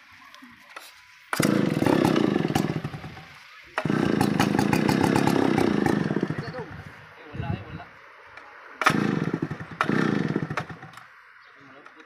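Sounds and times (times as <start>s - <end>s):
chainsaw two-stroke engine running: 1.3s - 7.1s, 8.8s - 11.1s.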